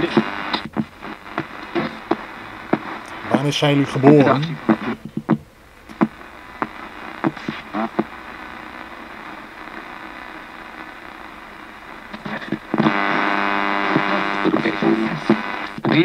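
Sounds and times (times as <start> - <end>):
radio static hiss: 0.0 - 16.0
snippets of broadcast sound: 0.0 - 16.0
loud buzzing tone: 5.8 - 15.8.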